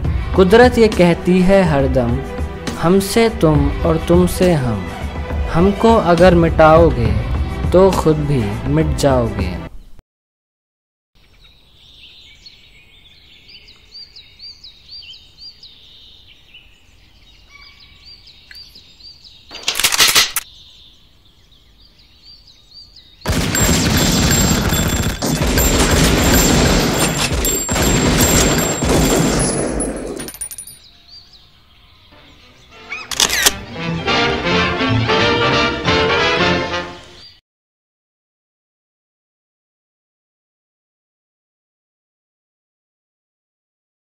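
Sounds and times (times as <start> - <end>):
birds chirping: 11.2 - 33.5, 36.7 - 37.4
rapid gunfire: 23.3 - 29.9.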